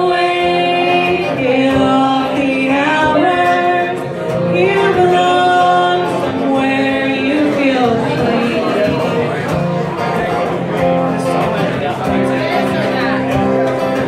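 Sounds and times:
woman singing lead: 0.0s - 9.5s
strummed acoustic guitar: 0.0s - 14.0s.

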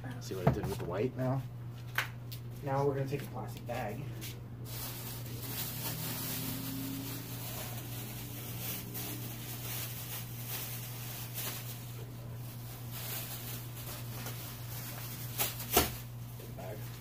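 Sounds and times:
steady low hum: 0.0s - 17.0s
plastic bag rustling: 3.8s - 17.0s.

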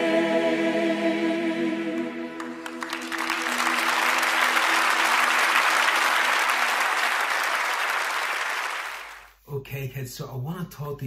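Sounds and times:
held music chord: 0.0s - 7.1s
audience applauding: 2.4s - 9.3s.

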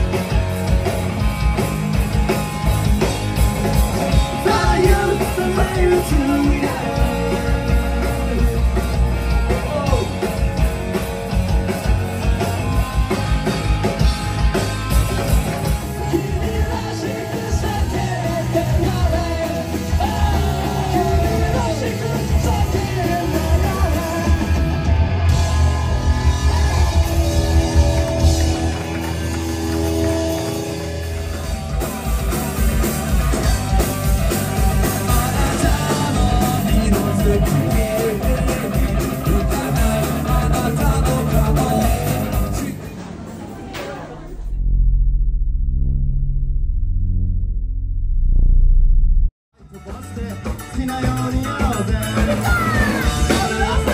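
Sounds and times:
drum kit: 0.0s - 44.8s, 49.6s - 53.9s
distorted electric guitars: 0.0s - 53.9s
person singing and shouting: 49.9s - 53.9s.

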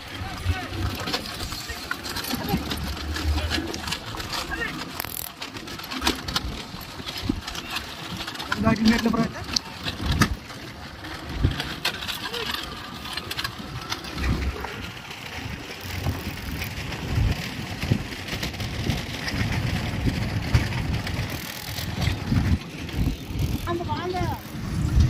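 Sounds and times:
rushing din of carts and motorcycles: 0.0s - 25.0s
wind rumble on microphone: 13.0s - 25.0s.

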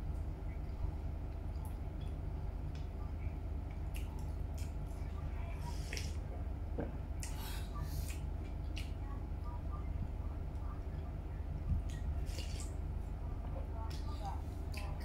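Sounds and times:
steady low hum: 0.0s - 15.0s
wet chewing: 3.7s - 6.2s.

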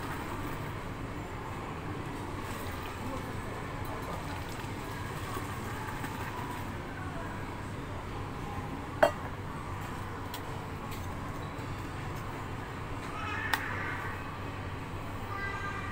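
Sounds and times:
steady background noise: 0.0s - 15.9s.

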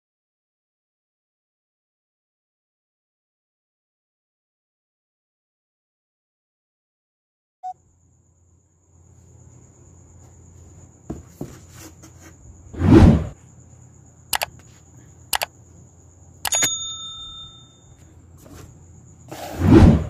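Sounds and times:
short bell ding: 16.5s - 18.0s
whoosh: 19.5s - 20.0s.

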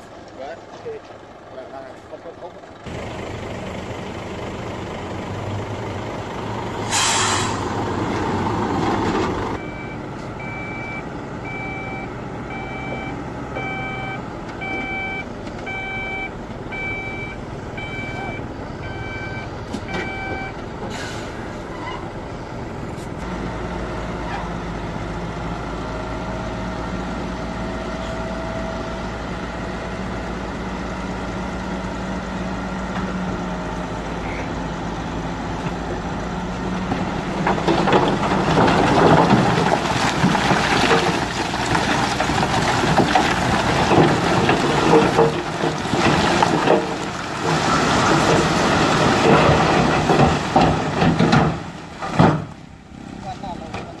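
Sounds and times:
diesel truck engine running: 0.0s - 54.0s
rock load crashing onto ground: 37.0s - 52.6s.

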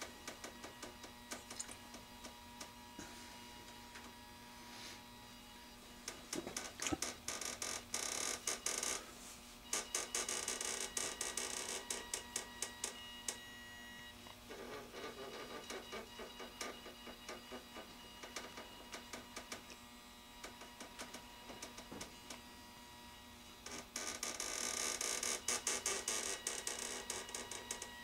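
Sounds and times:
faint motor whir: 0.0s - 28.0s
small motor and gears clicking: 23.6s - 28.0s.

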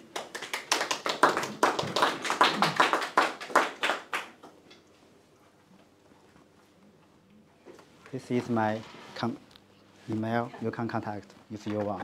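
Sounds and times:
audience applause: 0.0s - 4.4s.

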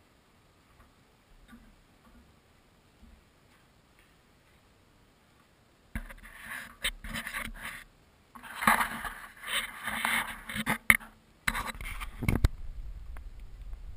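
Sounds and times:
scraping and rubbing: 6.0s - 12.6s.

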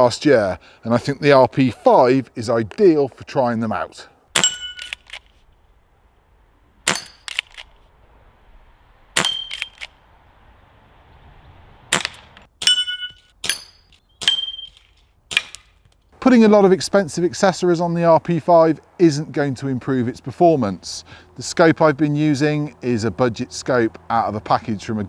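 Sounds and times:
short metallic ring: 4.4s - 5.1s, 6.9s - 7.4s, 9.2s - 9.9s, 12.6s - 14.9s
air rifle shots: 6.8s - 7.8s, 11.9s - 12.8s.

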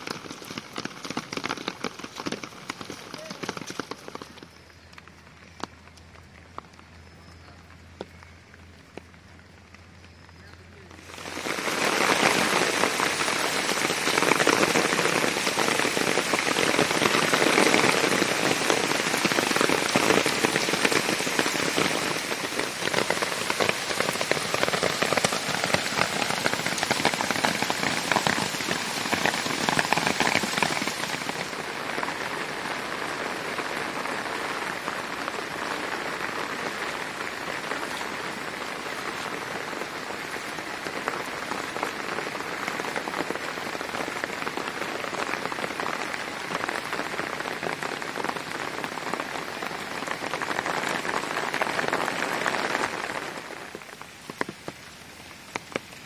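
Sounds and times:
heavy rain splashing on water: 0.0s - 56.0s.

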